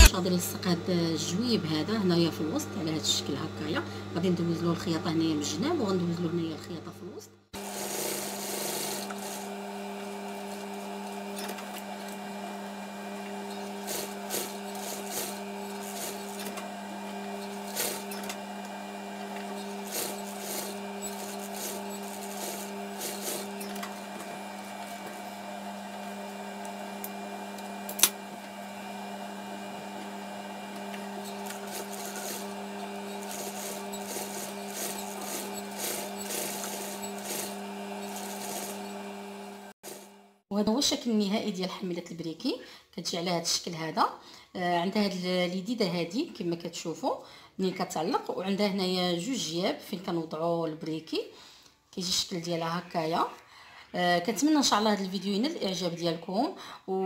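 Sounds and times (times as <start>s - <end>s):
sewing machine motor hum: 7.6s - 40.4s
needle clatter: 31.3s - 38.8s.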